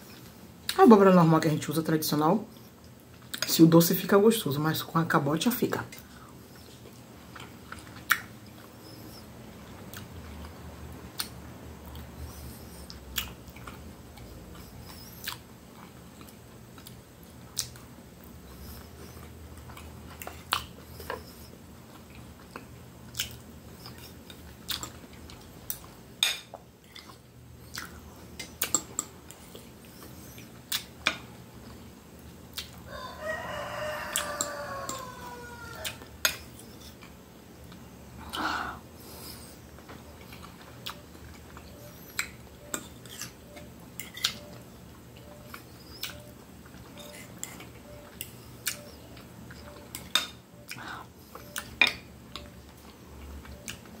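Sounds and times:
chewing: 5.9 - 32.9, 33.9 - 38.4, 39.1 - 54.0
rooster crowing: 32.9 - 36.1
cutlery scraping on plate: 44.0 - 44.5, 46.9 - 47.7.

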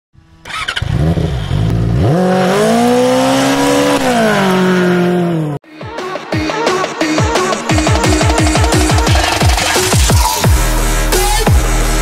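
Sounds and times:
motorcycle engine revving: 0.2 - 5.6.

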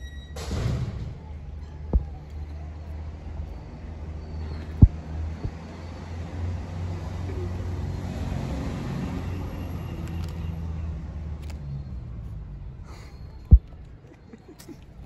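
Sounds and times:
passing vehicle rumble: 0.4 - 14.1
loud low thump: 13.5 - 13.7.

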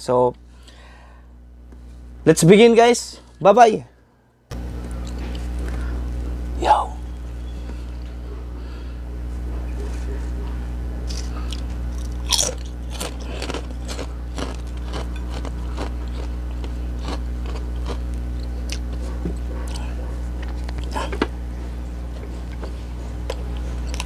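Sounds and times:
steady low hum: 0.0 - 24.0
food crackling and crunching: 11.0 - 24.0.

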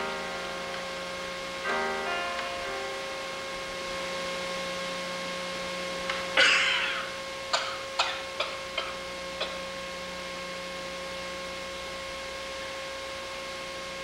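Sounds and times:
piano-like note: 0.0 - 6.5
steady hum: 0.0 - 14.0.

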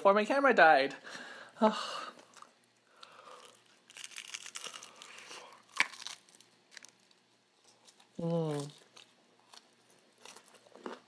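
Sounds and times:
fried chicken crust crunching: 3.4 - 7.2, 7.8 - 11.0.

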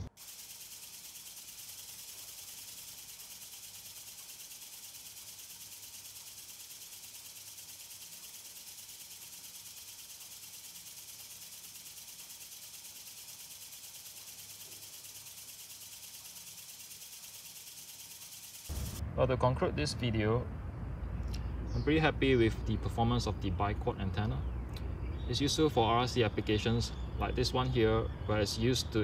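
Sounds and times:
high hiss: 0.0 - 19.0.

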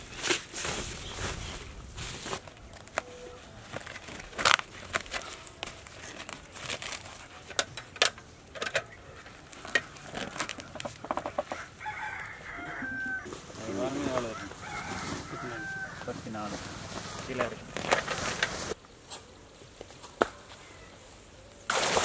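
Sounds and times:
rooster crowing: 11.4 - 16.5.

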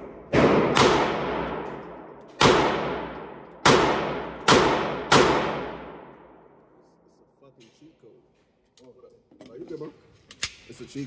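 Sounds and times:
pistol shots echoing indoors: 0.0 - 6.6.

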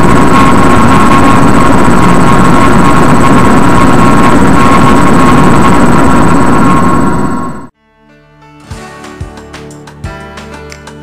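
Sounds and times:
rumble: 0.0 - 7.7
thin high whine: 0.0 - 7.7
loud droning noise: 0.0 - 7.8.

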